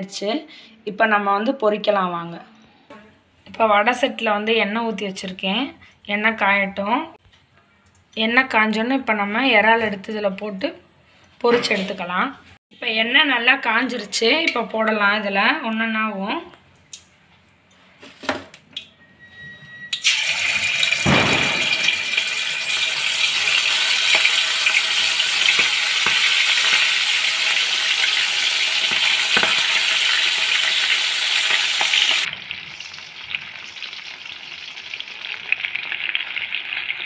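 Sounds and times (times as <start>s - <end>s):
prawns deep-frying in hot oil: 20.0s - 37.0s.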